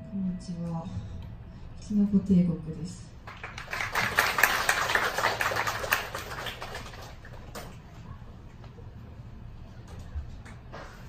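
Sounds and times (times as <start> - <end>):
audience applause: 3.3 - 7.6.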